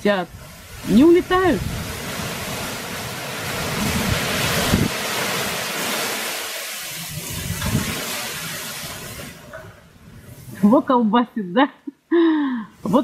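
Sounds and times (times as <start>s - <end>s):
wind buffeting microphone: 0.0s - 5.9s, 6.9s - 10.7s
gusting wind through trees: 0.0s - 11.2s.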